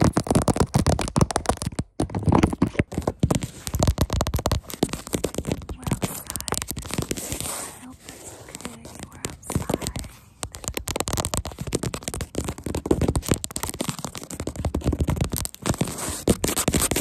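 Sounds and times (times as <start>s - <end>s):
fingertips tapping on phone: 0.0s - 17.0s.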